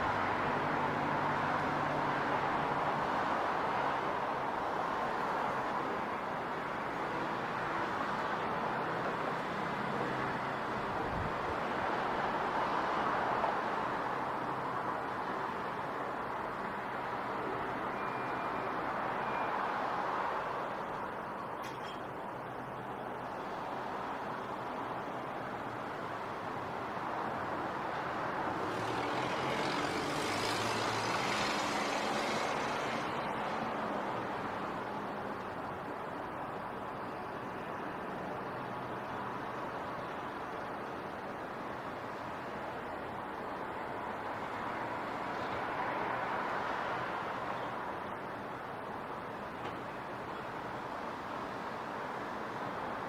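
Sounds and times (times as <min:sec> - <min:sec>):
city traffic: 0:00.0 - 0:53.0
vehicle passing: 0:28.6 - 0:33.7.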